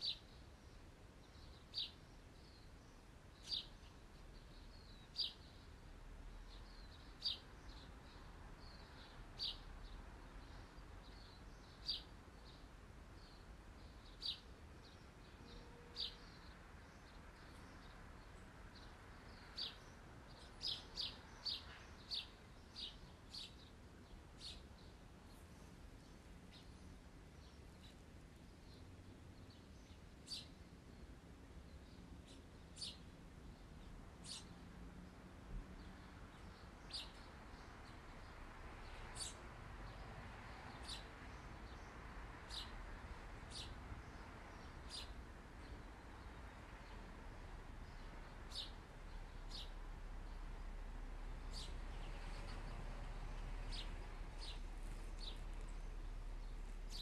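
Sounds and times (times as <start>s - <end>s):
low steady hiss: 0.0s - 57.0s.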